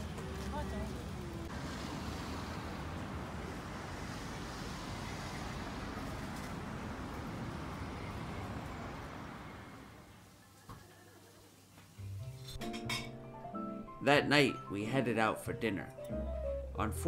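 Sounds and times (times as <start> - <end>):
cars passing on street: 0.0 - 10.3.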